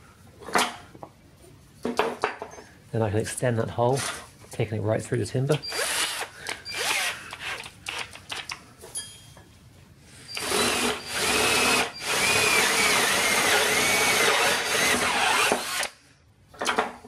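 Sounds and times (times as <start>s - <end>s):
power drill boring through wood: 5.6s - 7.7s, 10.3s - 16.0s.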